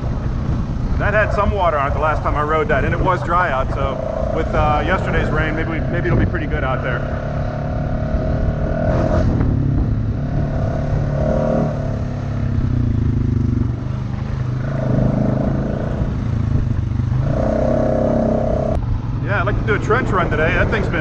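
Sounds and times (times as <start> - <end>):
atv engine revving: 0.0 - 21.0.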